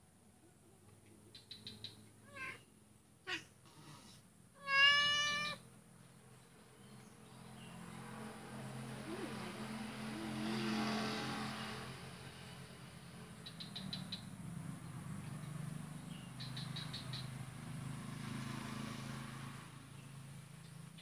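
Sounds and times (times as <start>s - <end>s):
vehicle noise: 0.4s - 21.0s
cat meowing: 2.2s - 2.6s, 3.3s - 3.5s, 4.6s - 5.6s.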